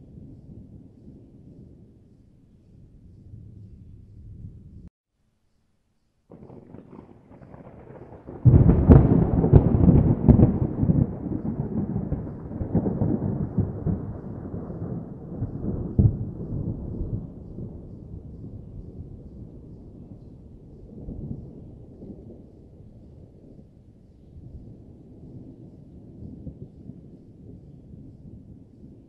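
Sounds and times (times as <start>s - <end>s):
thunder crack and rumble: 6.3s - 23.8s, 24.4s - 29.0s.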